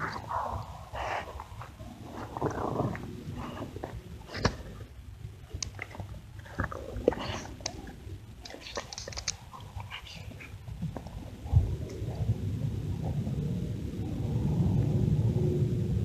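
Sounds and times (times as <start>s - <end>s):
dog chewing: 0.0s - 11.4s.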